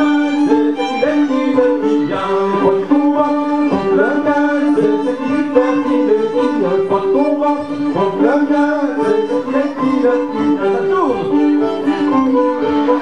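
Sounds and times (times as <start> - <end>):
fiddle folk dance tune: 0.0 - 13.0.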